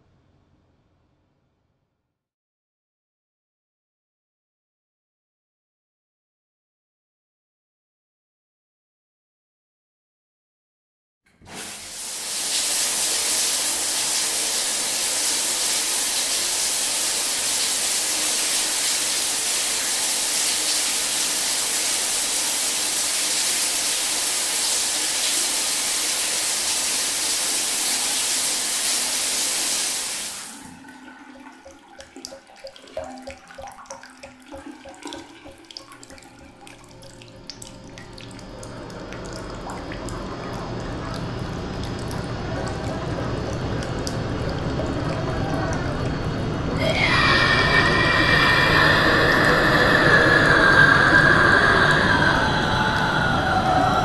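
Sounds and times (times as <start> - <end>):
shower spray hissing: 11.5 - 30.6.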